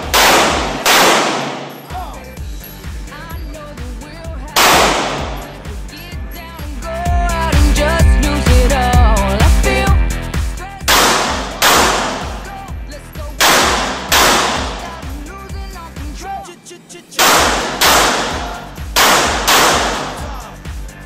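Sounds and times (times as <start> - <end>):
handgun shots ringing: 0.0 - 2.1, 4.6 - 5.7, 10.9 - 12.7, 13.4 - 15.1, 17.2 - 20.5
pop music: 0.0 - 21.0.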